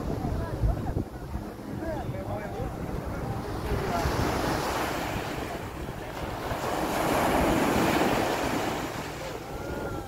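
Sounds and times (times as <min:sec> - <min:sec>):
wind buffeting microphone: 0:00.0 - 0:10.0
small waves breaking on shore: 0:02.8 - 0:10.0.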